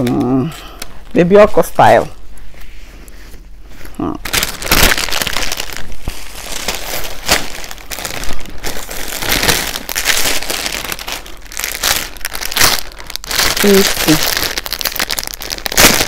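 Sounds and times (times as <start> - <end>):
plastic bag crinkling: 3.6 - 16.0.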